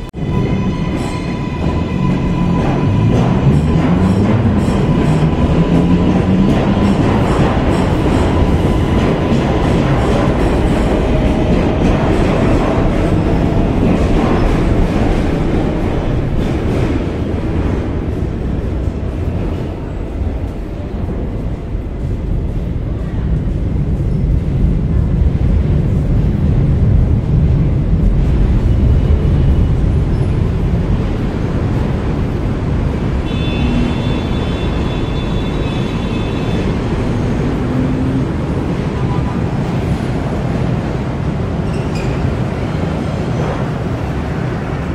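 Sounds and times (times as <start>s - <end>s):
elevated train rumble: 0.0s - 44.9s
street traffic: 0.0s - 44.9s
high-pitched train squeal: 0.2s - 3.6s, 41.7s - 42.4s.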